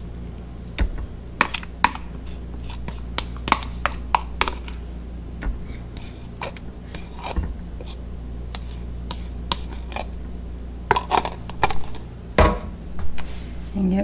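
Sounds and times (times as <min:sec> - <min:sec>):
metal spoon scraping plastic tub: 0:01.4 - 0:04.8, 0:05.9 - 0:10.2, 0:10.9 - 0:12.1.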